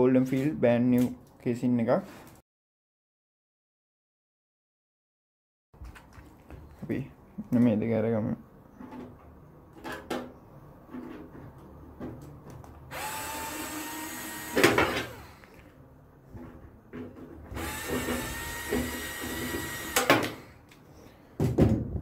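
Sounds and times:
cordless screwdriver whining: 12.9 - 15.5, 17.6 - 20.5.

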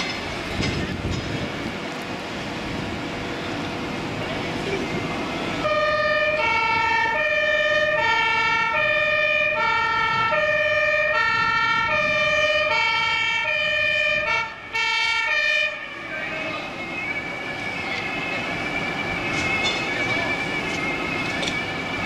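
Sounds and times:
two-tone emergency siren: 5.2 - 22.0.

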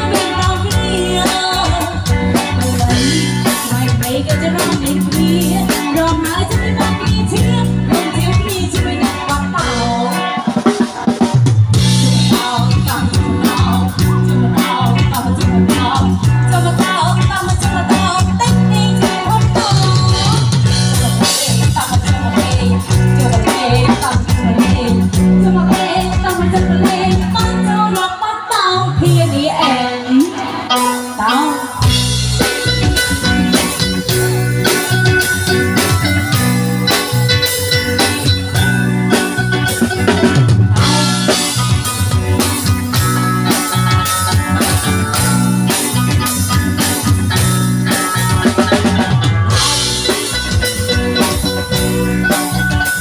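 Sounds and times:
woman singing into a microphone: 0.0 - 10.8, 11.9 - 32.2, 40.8 - 41.7
bass line: 0.0 - 28.1, 28.8 - 53.0
drum kit beat: 0.0 - 53.0.

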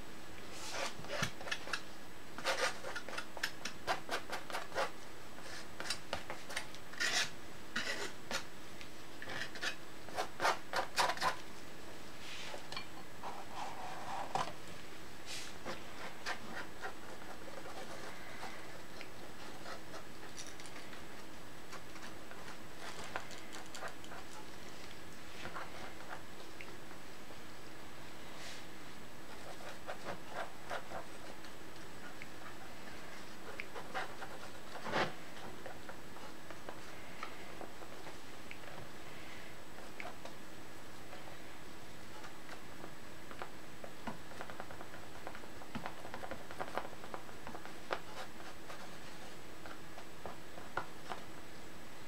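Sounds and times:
palette knife scraping paint: 0.5 - 8.5, 9.2 - 11.5, 15.3 - 26.2, 29.3 - 38.1.

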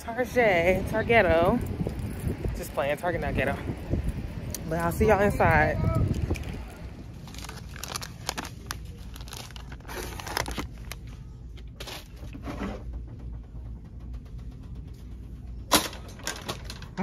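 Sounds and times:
low steady hum: 0.0 - 17.0
plastic packaging crinkling: 6.1 - 12.2.

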